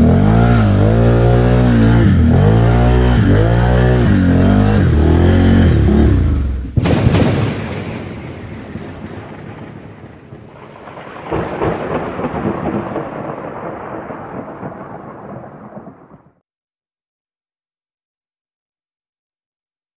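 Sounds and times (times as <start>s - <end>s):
rolling thunder: 6.7s - 16.4s
steady rain: 8.0s - 16.4s.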